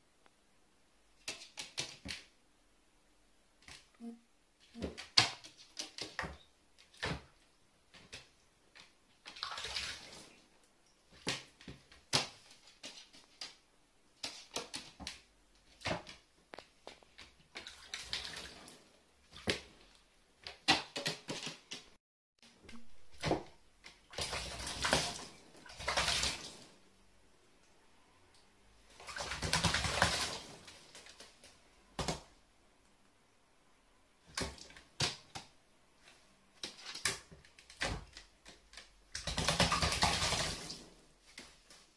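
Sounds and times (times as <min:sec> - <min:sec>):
bird splashing in water: 0:09.2 - 0:10.4, 0:23.2 - 0:26.7, 0:29.0 - 0:31.2, 0:36.7 - 0:40.9.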